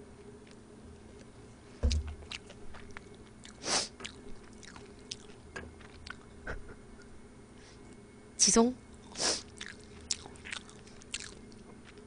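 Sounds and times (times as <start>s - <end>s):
dull thump: 1.8s - 2.2s
chewing clicks: 2.3s - 6.3s, 9.6s - 12.0s.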